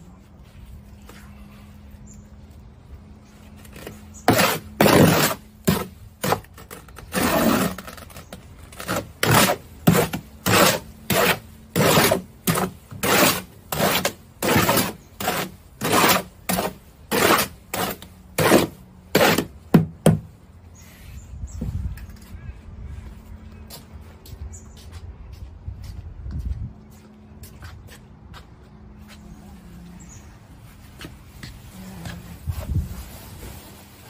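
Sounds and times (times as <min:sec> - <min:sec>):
shovel scraping steel wheelbarrow: 0:03.6 - 0:19.6.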